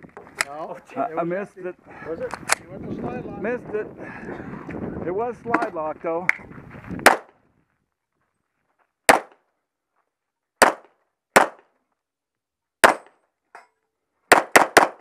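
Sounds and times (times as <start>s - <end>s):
pistol shots: 7.0s - 7.3s, 9.1s - 9.4s, 10.6s - 11.7s, 12.8s - 13.2s, 14.3s - 15.0s.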